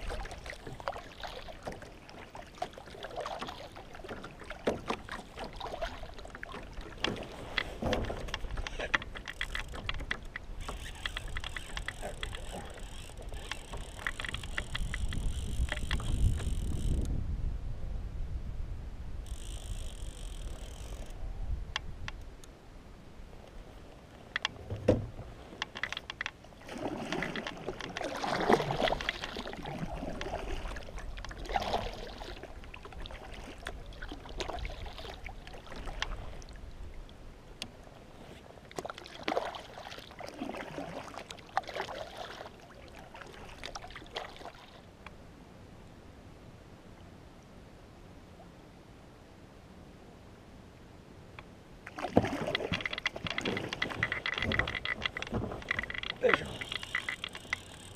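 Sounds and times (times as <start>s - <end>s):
kayak paddle splashing in water: 0.0s - 16.5s, 24.8s - 36.6s, 38.2s - 44.9s, 51.8s - 57.9s
wind rumbling on microphone: 6.0s - 23.9s.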